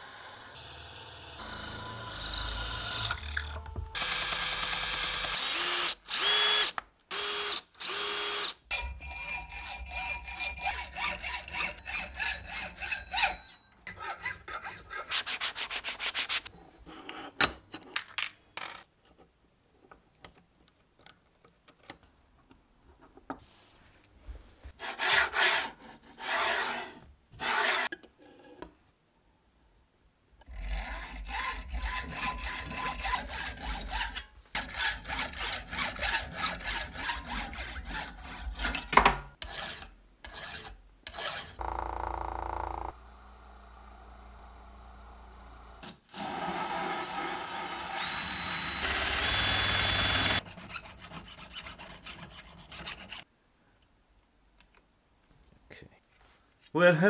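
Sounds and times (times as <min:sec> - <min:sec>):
hacksaw cutting brass bar: 0:01.6 - 0:15.0, 0:30.5 - 0:41.6, 0:47.7 - 0:50.4
drill press boring into brass: 0:45.5 - 0:50.4.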